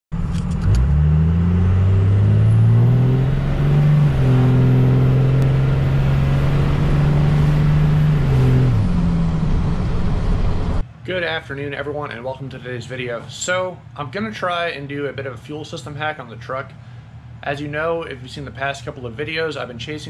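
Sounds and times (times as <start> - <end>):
diesel engine pulling under load: 0.2 - 10.8.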